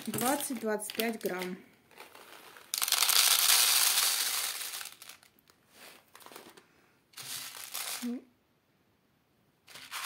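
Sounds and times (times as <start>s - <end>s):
seeds pouring into plastic tray: 0.0s - 6.5s, 7.2s - 8.2s, 9.7s - 10.0s
plastic bag crinkling: 0.0s - 6.6s, 7.2s - 8.2s.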